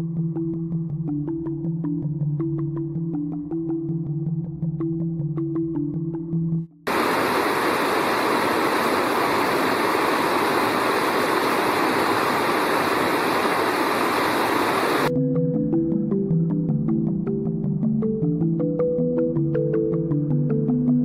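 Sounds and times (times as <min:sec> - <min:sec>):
background music: 0:00.0 - 0:06.7, 0:15.1 - 0:21.0
creek water rushing: 0:06.9 - 0:15.1.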